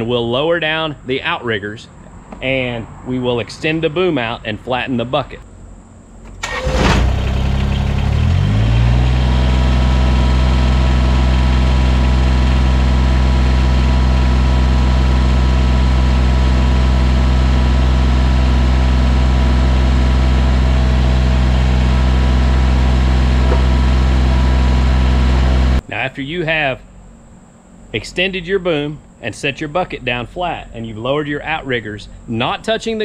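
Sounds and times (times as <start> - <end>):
tractor diesel engine running: 6.4 - 25.8.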